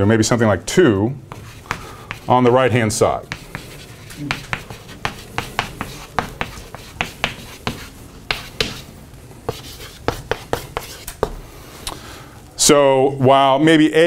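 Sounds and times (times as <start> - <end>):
chalk tapping on blackboard: 1.3 - 11.5.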